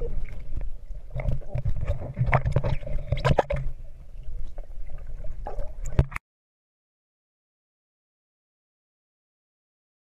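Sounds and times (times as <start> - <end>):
muffled underwater sloshing and bubbling: 0.0 - 6.2.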